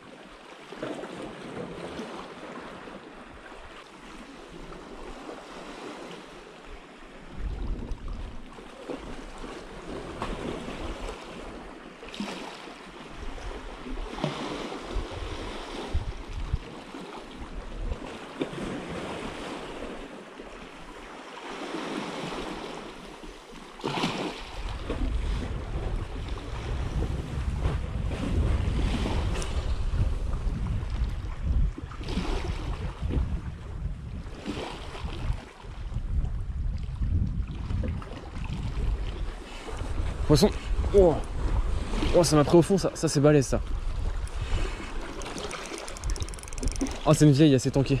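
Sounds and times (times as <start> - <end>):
wind buffeting microphone: 7.2 - 9.2, 14.8 - 16.7, 24.7 - 42.2, 43.5 - 48.0.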